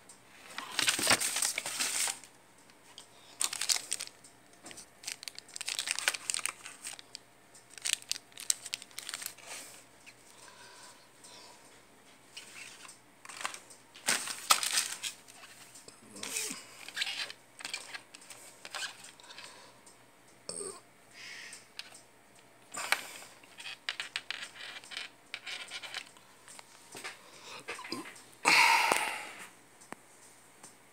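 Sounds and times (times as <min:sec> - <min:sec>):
plastic packaging crinkling: 0:00.5 - 0:02.3, 0:03.2 - 0:10.3, 0:12.4 - 0:19.2.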